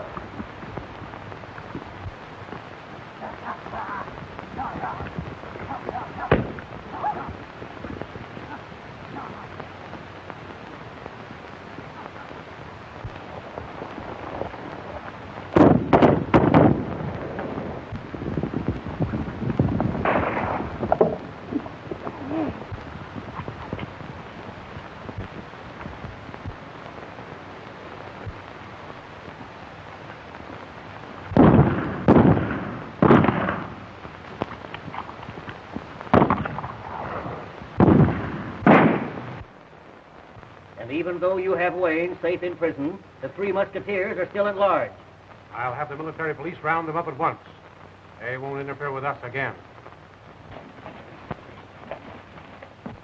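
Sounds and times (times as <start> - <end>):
horses galloping: 0.0 - 39.9, 48.2 - 53.0
film soundtrack hiss: 0.0 - 53.0
rifle shots: 15.6 - 16.9, 20.0 - 21.3, 31.4 - 33.8, 37.8 - 39.4
gunshots with echo: 20.0 - 20.8, 37.8 - 39.3.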